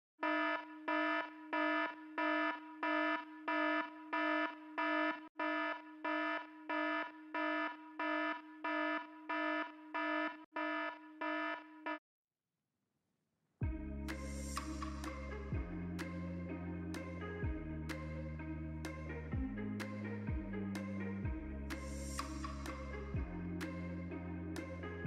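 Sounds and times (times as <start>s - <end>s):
alarm beeping: 0.2s - 12.0s.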